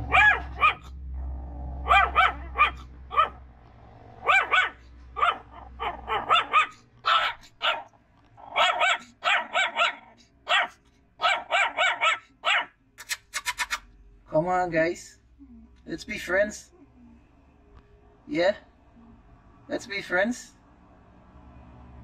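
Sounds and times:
puppies yapping: 0.0s - 1.0s, 1.8s - 3.4s, 4.2s - 13.8s.

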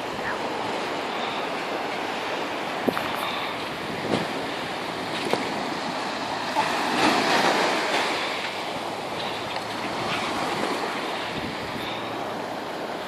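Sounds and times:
sea surf on sandy beach: 0.0s - 13.0s
wind on microphone: 2.7s - 5.8s, 9.8s - 12.0s.

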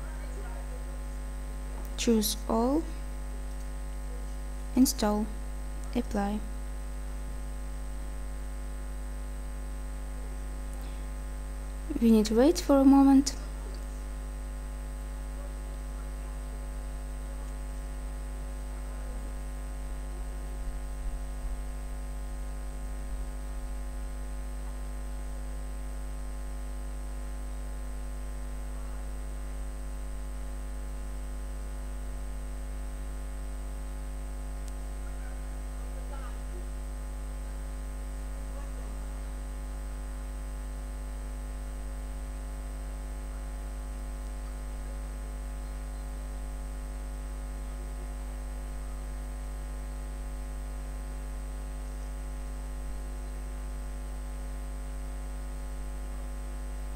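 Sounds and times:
electrical hum with high whine: 0.0s - 56.9s.

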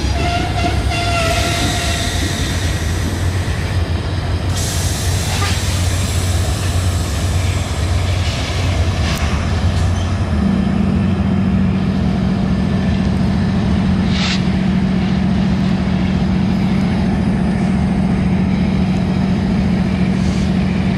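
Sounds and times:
locomotive engine drone: 0.0s - 20.9s.

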